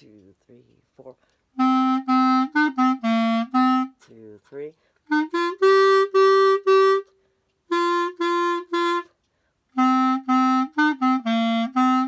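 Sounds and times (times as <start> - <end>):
solo clarinet: 1.6 - 4.0, 5.0 - 12.0.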